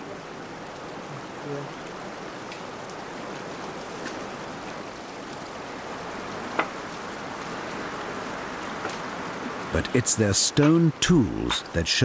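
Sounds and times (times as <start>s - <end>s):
stream running over rock: 0.0s - 12.0s.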